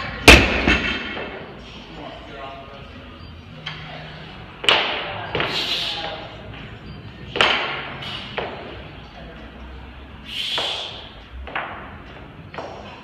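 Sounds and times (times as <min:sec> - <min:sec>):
iron plates thudding and clanking: 0:00.2 - 0:01.4.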